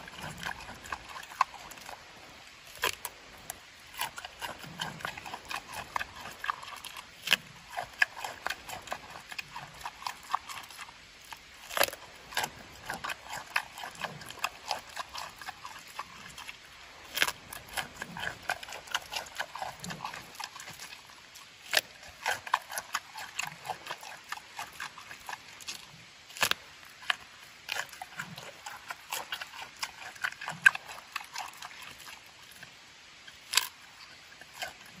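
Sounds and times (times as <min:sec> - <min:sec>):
panda chewing and smacking: 0:00.0 - 0:32.7, 0:33.3 - 0:35.0
loud crunch: 0:33.5 - 0:33.7.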